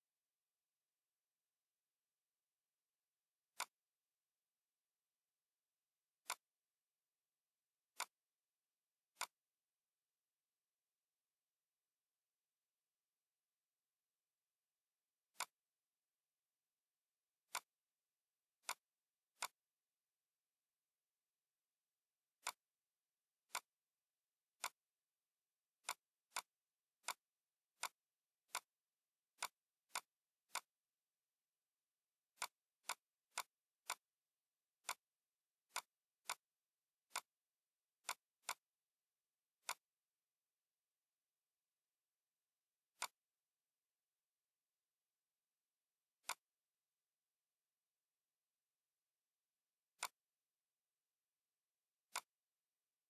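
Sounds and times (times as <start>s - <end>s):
computer mouse clicks: 3.5s - 3.9s, 6.2s - 6.5s, 7.9s - 8.2s, 9.1s - 9.5s, 15.3s - 15.6s, 17.4s - 17.8s, 18.6s - 19.7s, 22.4s - 22.7s, 23.4s - 23.8s, 24.5s - 24.8s, 25.7s - 28.8s, 29.4s - 30.8s, 32.3s - 34.1s, 34.8s - 37.4s, 38.0s - 38.7s, 39.6s - 40.0s, 42.9s - 43.3s, 46.2s - 46.6s, 50.0s - 50.3s, 52.0s - 52.4s.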